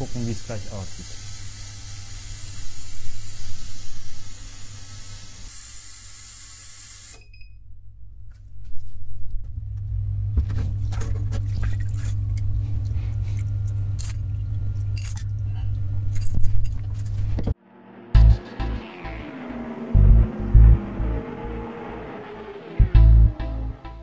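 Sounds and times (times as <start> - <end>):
ultrasonic cleaner hissing: 0.0 - 7.2
low hum: 7.3 - 24.0.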